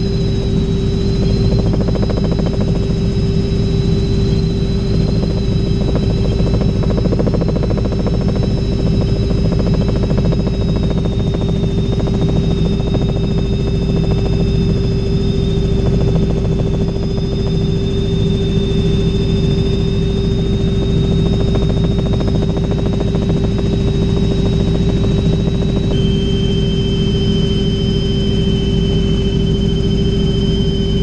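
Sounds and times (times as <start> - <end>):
helicopter rotor thrum: 0.0 - 30.2
high turbine whine: 0.0 - 31.0.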